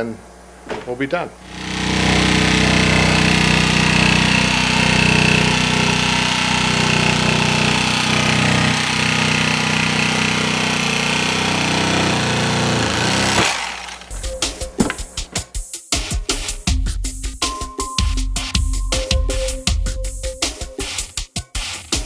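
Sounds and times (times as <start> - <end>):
electric knife cutting foam: 1.4 - 15.0.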